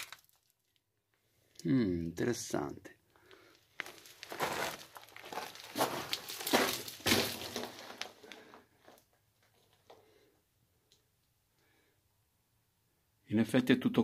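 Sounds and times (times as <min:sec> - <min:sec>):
footsteps crunching on gravel: 0:03.7 - 0:09.0.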